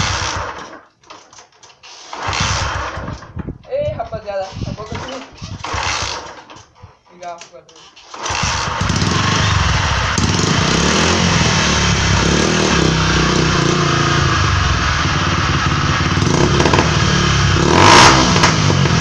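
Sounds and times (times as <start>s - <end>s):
small motorcycle engine revving: 0.0s - 0.8s, 1.9s - 3.3s, 5.4s - 6.5s, 8.0s - 19.0s.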